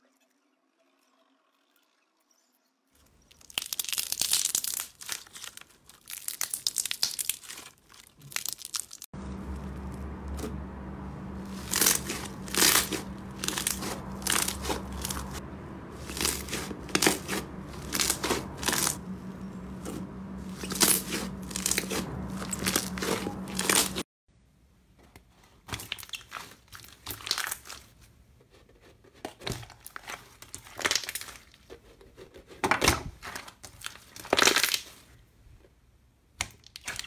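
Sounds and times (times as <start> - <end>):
steady low hum: 9.2 - 24.0.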